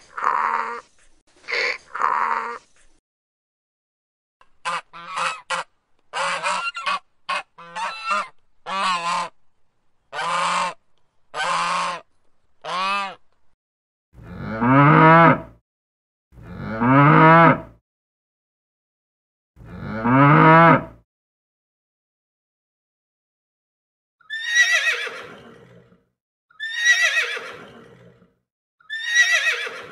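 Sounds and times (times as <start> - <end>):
swans honking: 4.6 - 9.4
cow mooing: 14.2 - 15.5, 16.4 - 17.7, 19.6 - 21.0.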